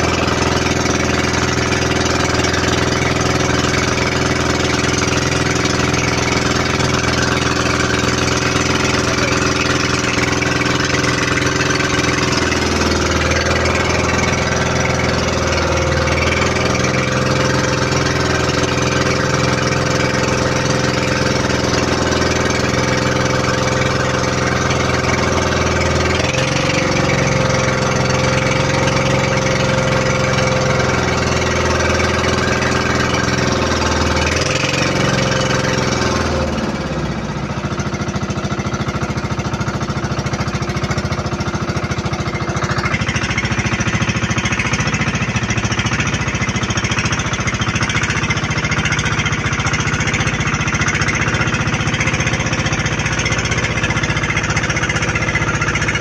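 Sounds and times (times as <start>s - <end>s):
boat engine running: 0.0s - 56.0s.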